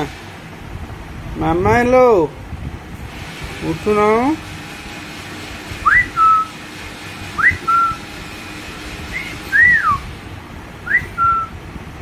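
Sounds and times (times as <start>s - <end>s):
person whistling two-note call: 5.9s - 6.5s, 7.4s - 8.0s, 9.1s - 10.0s, 10.9s - 11.6s.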